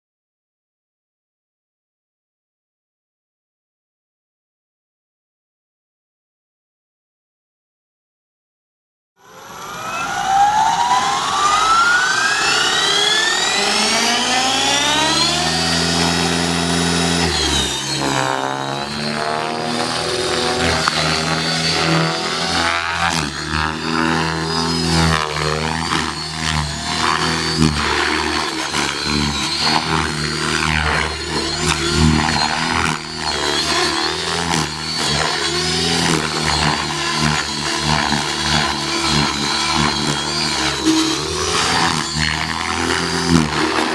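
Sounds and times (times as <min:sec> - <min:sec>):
rc helicopter motor whine: 0:09.2 - 0:43.9.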